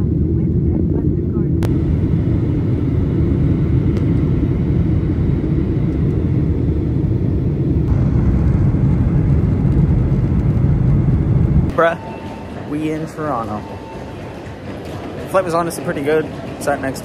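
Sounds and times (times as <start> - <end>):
jet engine rumble inside cabin: 0.0 - 11.8.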